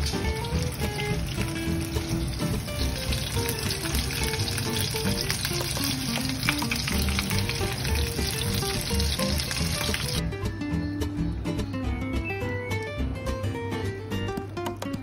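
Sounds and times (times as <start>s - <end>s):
meat sizzling in a frying pan: 0.0s - 10.2s.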